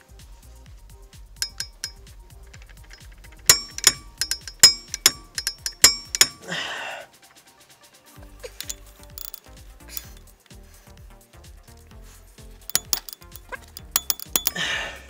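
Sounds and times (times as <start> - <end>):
torque wrench clicks: 1.4 - 2.0, 2.6 - 6.5, 8.6 - 10.3, 12.7 - 14.8
sharp metallic clinks: 1.4 - 6.7, 8.5 - 10.3, 12.6 - 15.0.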